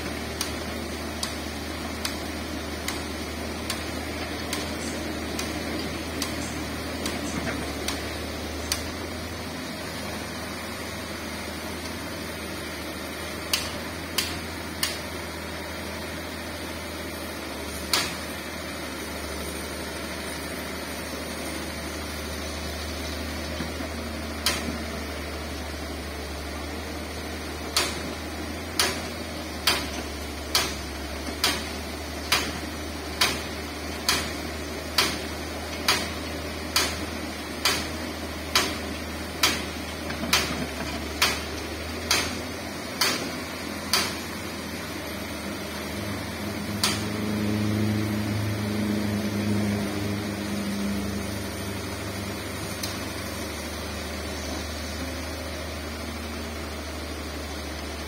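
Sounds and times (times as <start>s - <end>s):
excavator diesel drone: 0.0s - 58.0s
sharp clicks: 8.7s - 8.9s, 42.1s - 42.4s.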